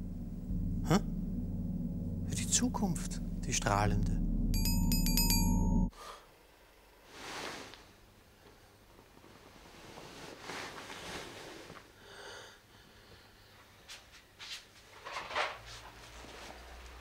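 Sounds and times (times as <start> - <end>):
low steady hum: 0.0 - 5.9
person breathing heavily: 12.0 - 13.7.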